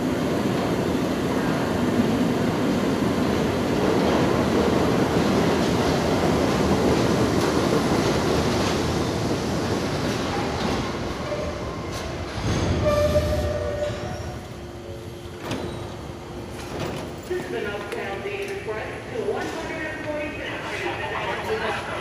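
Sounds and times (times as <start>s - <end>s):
train wheels rumbling on rail: 0.0s - 21.0s
high brake squeal: 12.8s - 14.4s.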